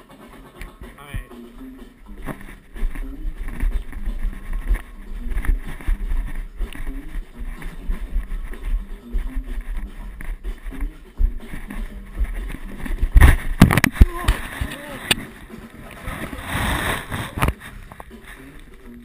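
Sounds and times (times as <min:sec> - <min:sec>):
camera handling rumble: 0:09.2 - 0:15.3.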